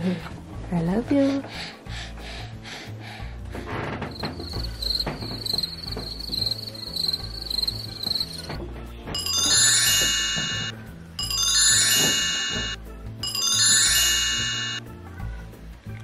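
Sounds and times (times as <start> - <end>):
background music with low bass: 0.0 - 16.0
magic chime tinkles: 9.2 - 14.8.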